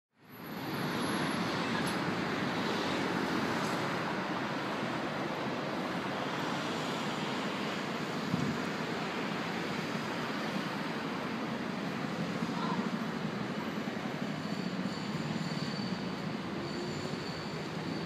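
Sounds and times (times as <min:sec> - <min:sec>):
city street traffic noise: 0:00.2 - 0:18.0.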